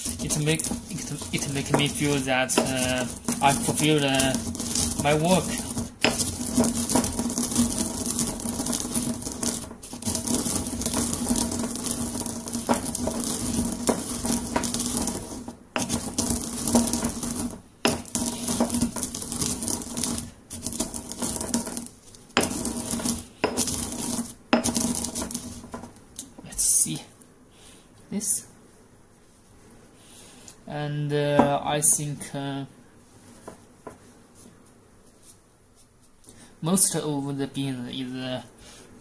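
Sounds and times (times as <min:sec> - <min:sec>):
pestle grinding coffee beans in mortar: 0:00.0 - 0:26.6, 0:33.3 - 0:34.0.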